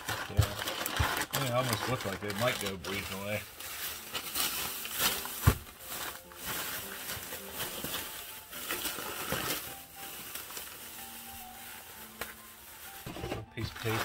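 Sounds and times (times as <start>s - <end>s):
plastic bag crinkling: 0.0s - 14.0s
bundle thumping on table: 5.4s - 5.7s.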